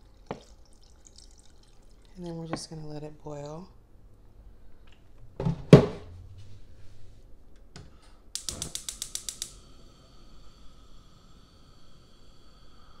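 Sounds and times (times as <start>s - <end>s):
faint steady hum: 0.0s - 13.0s
stove knob clicking: 8.4s - 9.6s.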